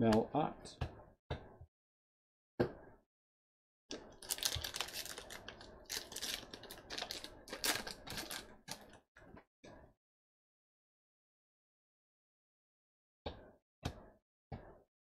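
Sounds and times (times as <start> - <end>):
wrapper crinkling: 3.9 - 9.0.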